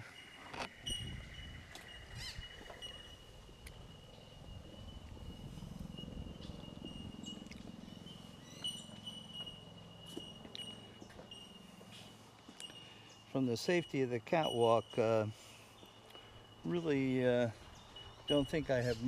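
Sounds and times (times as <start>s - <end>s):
frogs trilling: 0.2s - 19.0s.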